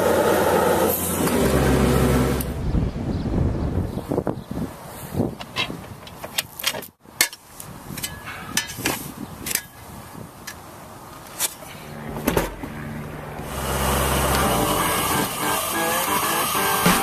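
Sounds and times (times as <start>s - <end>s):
music: 14.5s - 17.0s.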